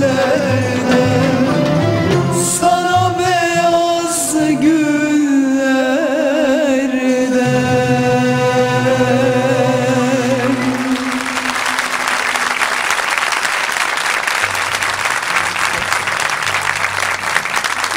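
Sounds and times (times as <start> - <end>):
audience applauding: 10.2 - 17.9.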